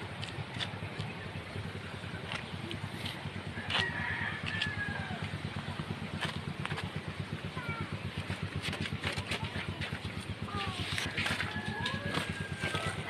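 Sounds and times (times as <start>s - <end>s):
low mechanical rumble: 0.0s - 13.0s
rooster crowing: 3.6s - 5.4s, 11.1s - 13.0s.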